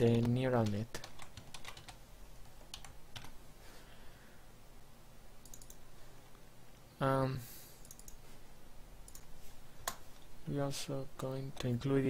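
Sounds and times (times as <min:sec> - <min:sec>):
computer keyboard typing: 0:00.0 - 0:03.4, 0:05.4 - 0:05.8, 0:07.8 - 0:08.2.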